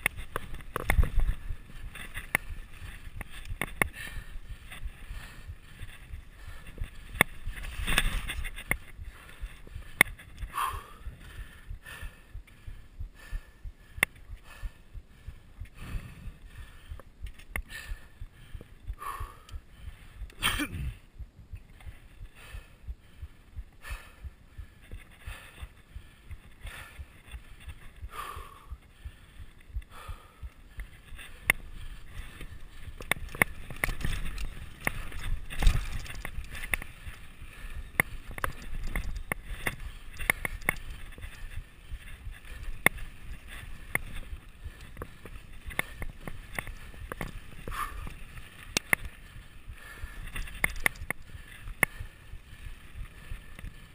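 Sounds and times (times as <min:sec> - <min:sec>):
bike rattling on rough trail: 0:00.0 - 0:12.5, 0:24.6 - 0:53.9
heartbeat: 0:00.0 - 0:48.4
bike tyre rumble: 0:00.0 - 0:53.9.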